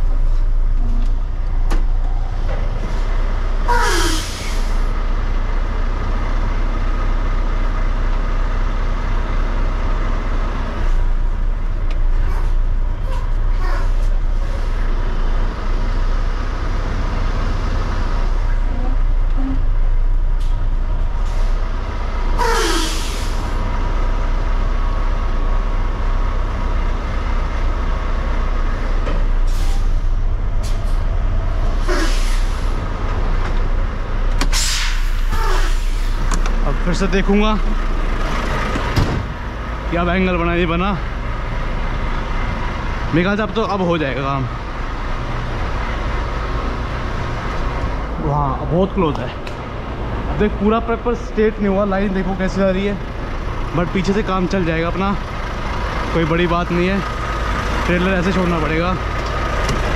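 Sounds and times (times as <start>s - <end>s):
diesel truck engine running: 0.0s - 59.9s
air brake hisses: 3.7s - 4.9s, 22.4s - 23.6s, 29.5s - 31.0s, 31.8s - 32.8s, 34.5s - 36.3s.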